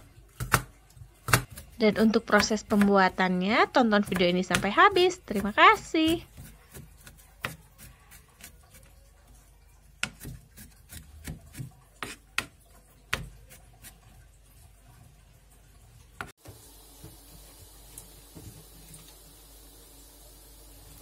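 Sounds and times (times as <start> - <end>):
knife chopping on cutting board: 0.4 - 3.0, 4.0 - 8.9, 10.0 - 12.5
knife scraping board: 10.0 - 12.2.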